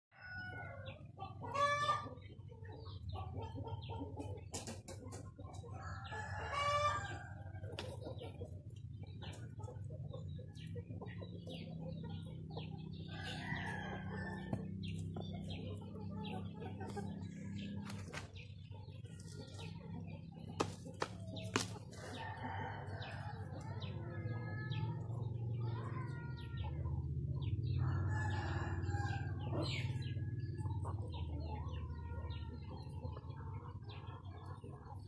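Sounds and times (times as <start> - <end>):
hens and rooster clucking: 0.1 - 35.0.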